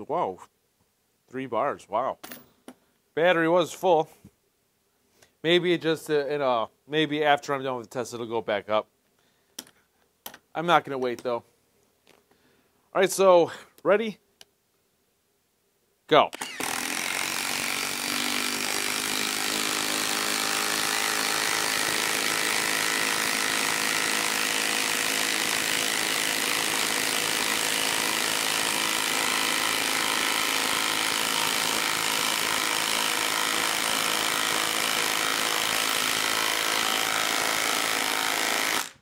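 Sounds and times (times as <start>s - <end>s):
impact wrench hammering: 16.4s - 39.0s.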